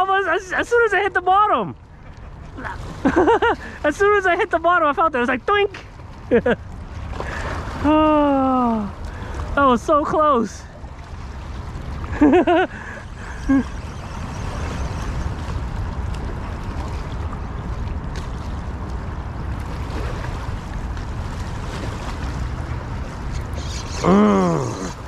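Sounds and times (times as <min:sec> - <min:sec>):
wind rumble: 0:10.8 - 0:25.0
water hissing against shore: 0:23.2 - 0:25.0
short vocal exclamation: 0:23.9 - 0:25.0.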